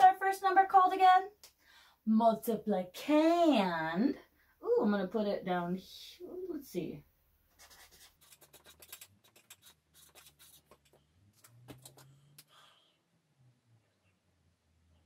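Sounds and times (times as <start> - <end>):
felt-tip marker writing on paper: 7.6 - 12.0.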